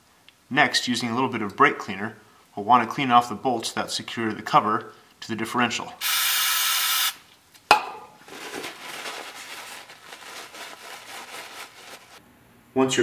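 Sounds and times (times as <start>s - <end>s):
aerosol spray hiss: 6.0s - 7.2s
paper towel rustling: 8.2s - 12.2s.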